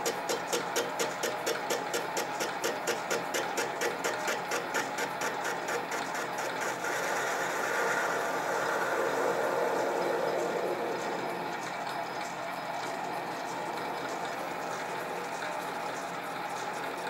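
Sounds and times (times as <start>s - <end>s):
lathe tool ticking: 0.0s - 17.0s
lathe cutting hiss: 6.5s - 11.5s.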